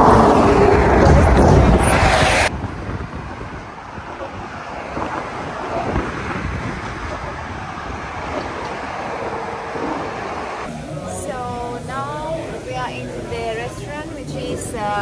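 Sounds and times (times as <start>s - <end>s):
wind blowing across microphone: 0.0s - 10.7s.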